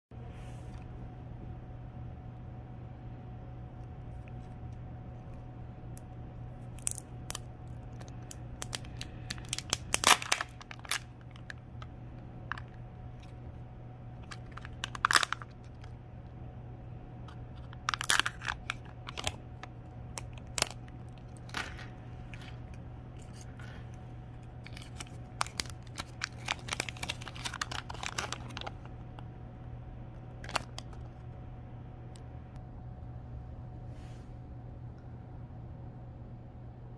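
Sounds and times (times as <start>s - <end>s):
foil crinkling and tearing: 6.7s - 11.6s, 14.2s - 15.9s, 17.6s - 22.6s, 24.6s - 28.9s, 30.4s - 31.2s.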